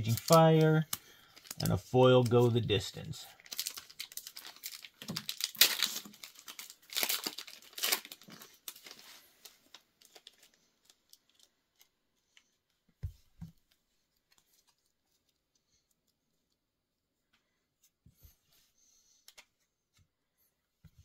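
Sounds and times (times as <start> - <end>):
foil wrapper tearing and crinkling: 0.0 - 11.9.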